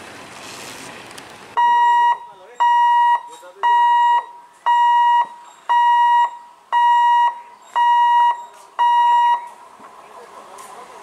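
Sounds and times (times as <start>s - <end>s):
level crossing alarm beeping: 1.6s - 9.5s.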